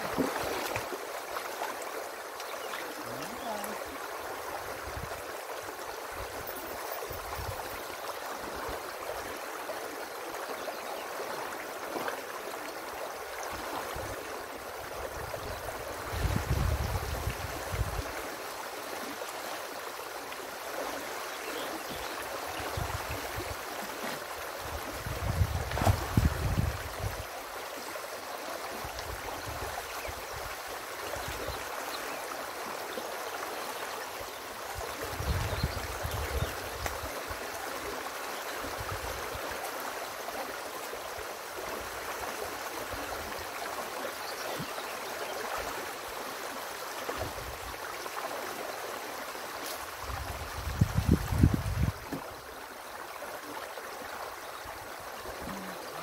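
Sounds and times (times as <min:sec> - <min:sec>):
river water rushing and gurgling: 0:00.0 - 0:56.0.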